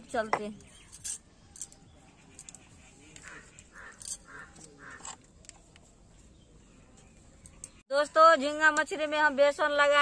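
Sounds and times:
crow cawing: 3.2 - 5.1.

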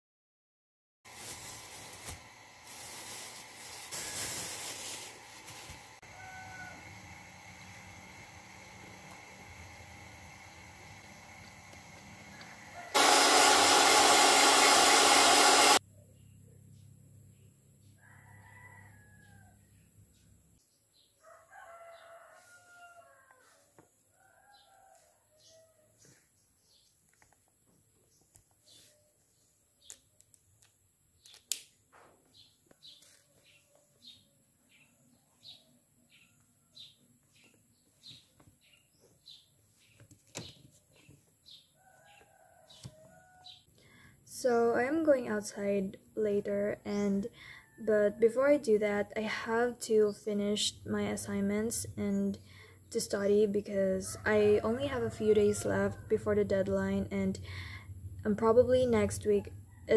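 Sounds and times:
hair dryer blowing: 1.1 - 15.8
rooster crowing: 6.0 - 7.4, 12.2 - 13.5, 18.0 - 19.7, 21.2 - 26.0, 41.8 - 43.6, 54.2 - 56.0
small bird chirping: 32.2 - 43.6.

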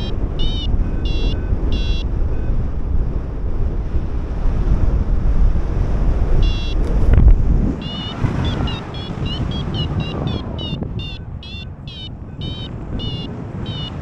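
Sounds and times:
short electronic beeps: 0.0 - 2.8, 6.4 - 7.0, 7.8 - 14.0
wind rush on microphone: 0.0 - 14.0.

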